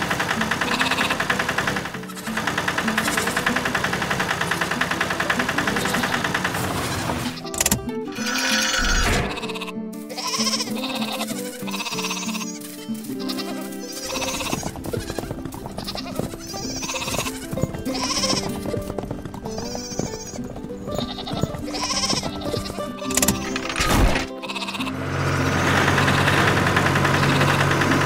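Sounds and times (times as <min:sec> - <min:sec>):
background music: 0:00.0 - 0:28.0
sheep bleating: 0:00.6 - 0:02.4, 0:08.1 - 0:28.0.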